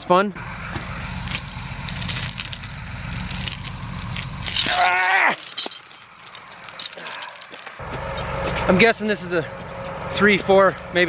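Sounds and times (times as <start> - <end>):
steel chain clinking and rattling: 0.8 - 7.8.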